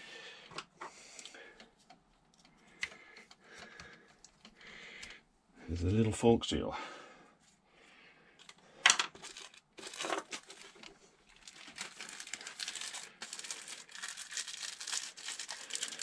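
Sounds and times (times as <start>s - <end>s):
plastic packaging crinkling: 9.2s - 16.0s.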